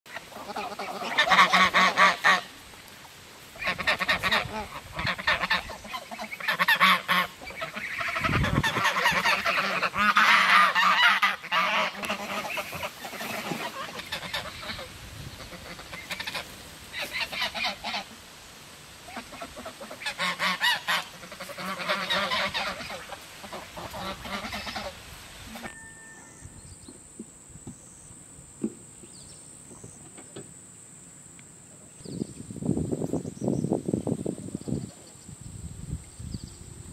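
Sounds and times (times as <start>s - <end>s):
geese honking: 0.1s - 2.6s, 3.4s - 18.2s, 19.0s - 26.4s.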